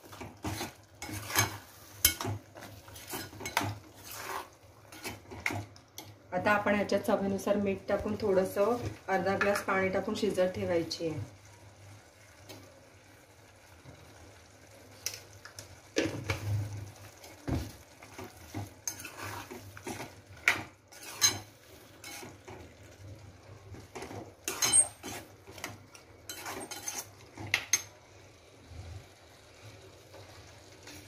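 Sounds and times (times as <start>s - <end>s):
metal ladle stirring curry: 0.0s - 6.1s, 18.0s - 22.4s, 23.9s - 27.3s
metal scraping on pan: 0.0s - 6.1s, 17.6s - 22.8s, 23.8s - 27.9s.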